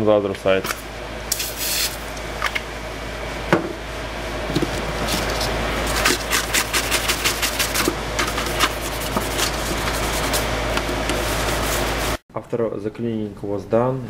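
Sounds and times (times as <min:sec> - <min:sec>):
steady low hum: 0:00.0 - 0:14.0
hand scrubbing in metal sink: 0:05.0 - 0:12.2.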